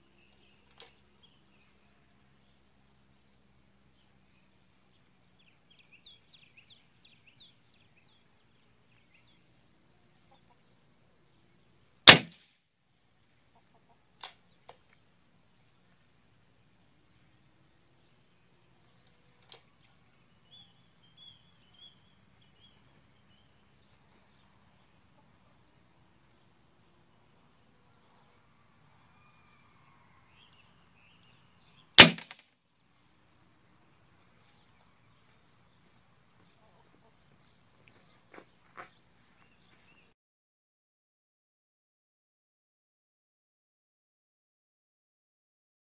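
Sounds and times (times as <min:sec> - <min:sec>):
air rifle shot: 0:12.1 - 0:12.4, 0:32.0 - 0:32.4.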